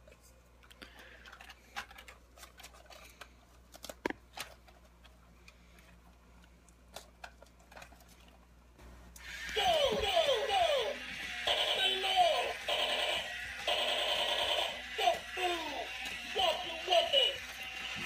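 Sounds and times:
hands handling plastic toy: 0.0 - 8.5.

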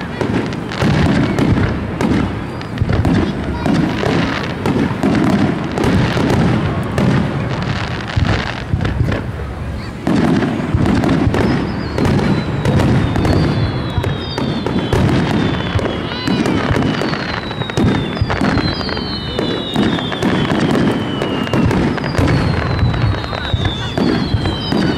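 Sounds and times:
firework crackle: 0.0 - 24.9
firework shells bursting: 10.0 - 24.9
high descending whistle: 11.5 - 24.9.

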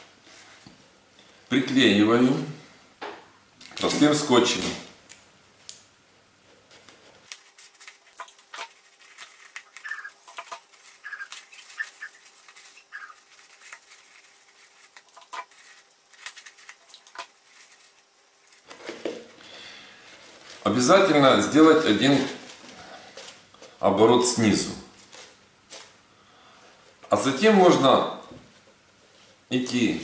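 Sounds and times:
crepe paper crinkling: 6.7 - 23.7
tape squeaks: 7.3 - 18.7.

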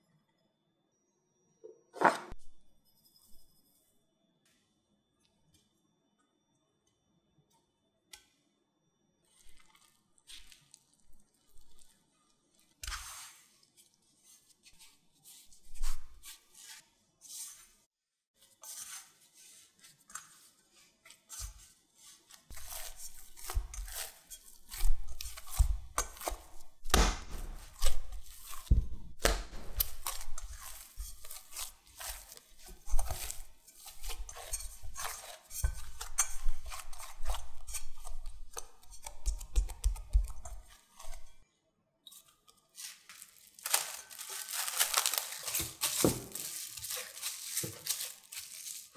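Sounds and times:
dough slapping and squishing: 9.3 - 17.8, 18.7 - 41.4, 42.7 - 48.9
spatula stirring dough in bowl: 9.3 - 41.4, 42.1 - 48.9
dough thumping down: 25.5 - 28.0.

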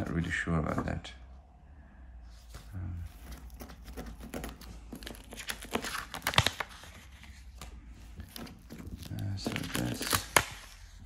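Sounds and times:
paper rustling and sliding: 2.3 - 11.0
sharp paper snaps: 3.9 - 6.8, 8.3 - 10.9.

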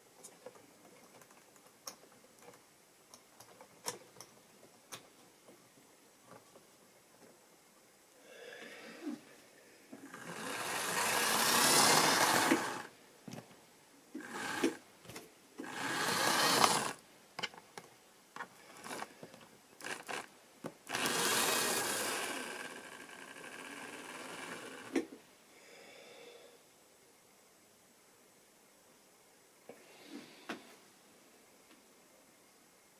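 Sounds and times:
model train motor whirring: 10.0 - 12.9, 14.2 - 14.8, 15.6 - 17.0, 18.8 - 19.1, 19.8 - 25.1.

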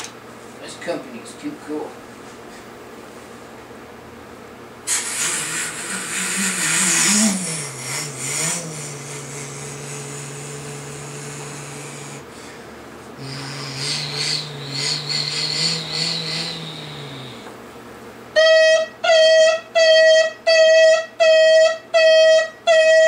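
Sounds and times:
toy truck engine sound effect: 4.9 - 12.2, 13.2 - 17.4.

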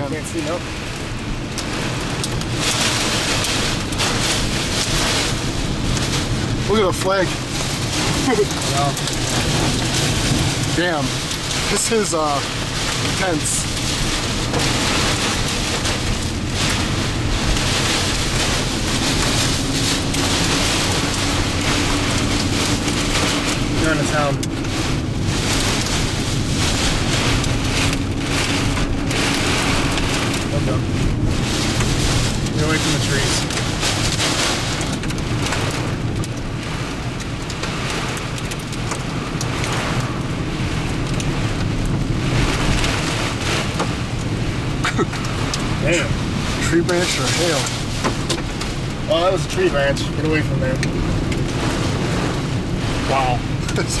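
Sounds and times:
car low rumble: 0.0 - 54.0
engine and road noise: 0.0 - 54.0
gusting wind: 0.0 - 54.0
torrential rain on a car: 0.0 - 54.0.

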